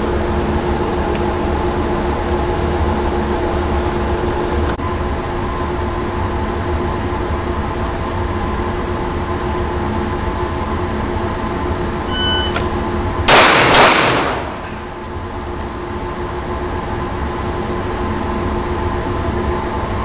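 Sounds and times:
ventilation hum: 0:00.0 - 0:20.0
shot timer beep: 0:12.1 - 0:12.7
pistol shots echoing: 0:13.3 - 0:14.9.

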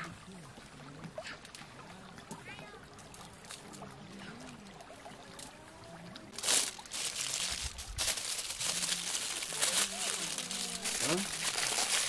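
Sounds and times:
aluminium foil crinkling: 0:06.4 - 0:12.0.

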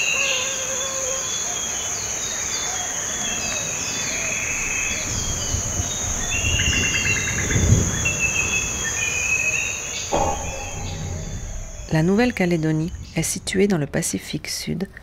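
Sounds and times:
insects droning: 0:00.0 - 0:13.8
low rumble: 0:10.1 - 0:13.4.

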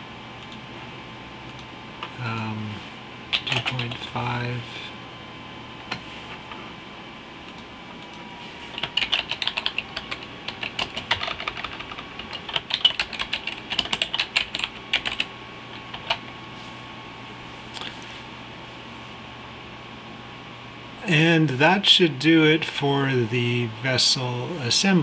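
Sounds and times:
typing on a keyboard: 0:03.3 - 0:04.0, 0:08.7 - 0:16.2.

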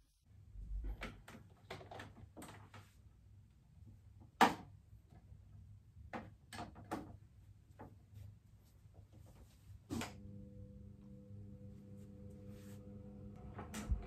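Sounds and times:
low steady hum: 0:07.5 - 0:14.0.

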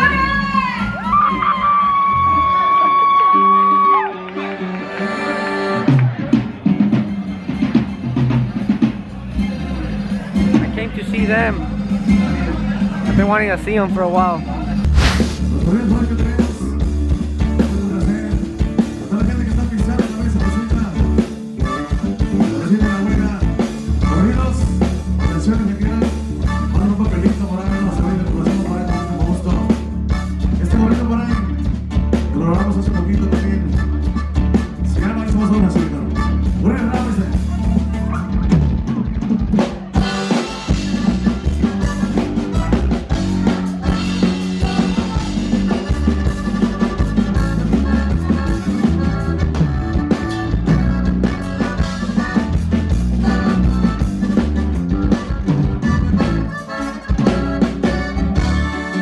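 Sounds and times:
live band through pa: 0:00.0 - 0:59.0
person singing: 0:43.1 - 0:46.1.

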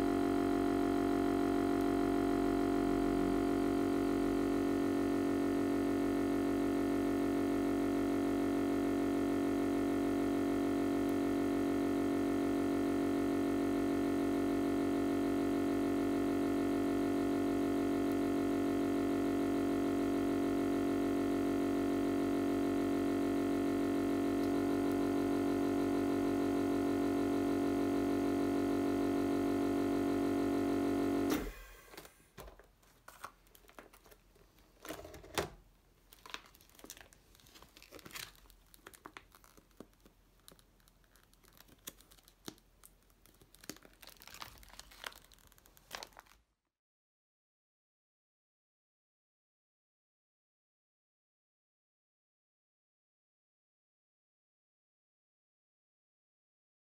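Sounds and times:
vacuum sealer pump humming: 0:00.0 - 0:33.9
plastic bags crinkling: 0:32.4 - 0:35.2, 0:36.0 - 0:46.4.

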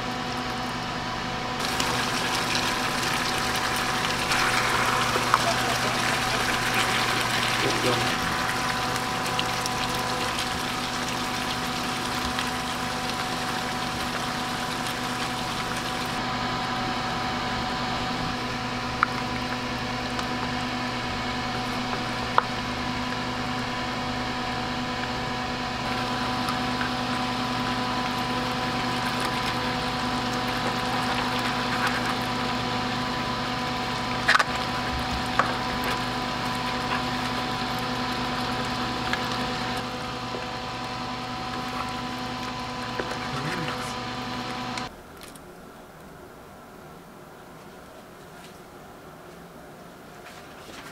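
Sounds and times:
steady hum: 0:00.0 - 0:50.8
sauce sizzling in a frying pan: 0:01.6 - 0:16.2.

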